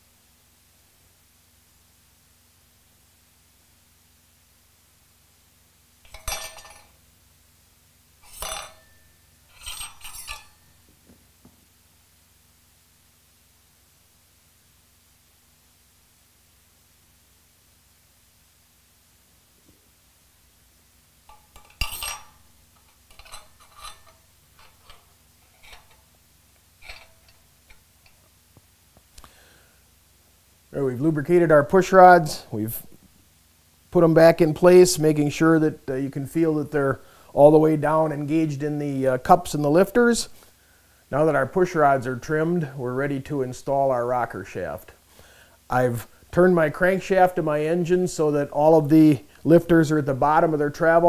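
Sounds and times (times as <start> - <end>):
metal rods clinking: 6.1 - 7.0, 8.2 - 10.8, 21.3 - 26.2, 26.8 - 28.4.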